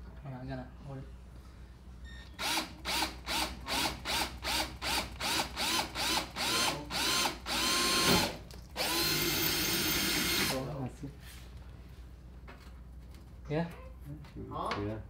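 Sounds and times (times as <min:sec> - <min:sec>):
power drill whine: 0:02.4 - 0:10.6.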